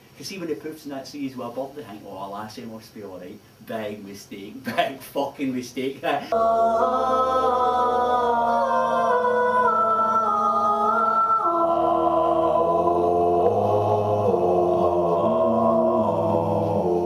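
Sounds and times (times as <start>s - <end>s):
choir singing sustained chords: 6.3s - 17.0s.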